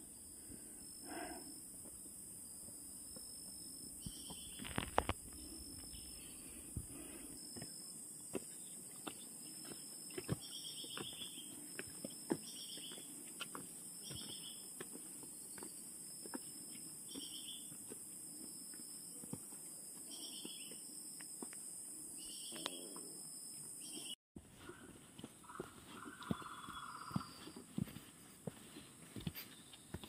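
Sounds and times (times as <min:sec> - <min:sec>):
footsteps on stony trail: 0:04.1 - 0:06.0, 0:06.7 - 0:21.7, 0:24.4 - 0:30.0.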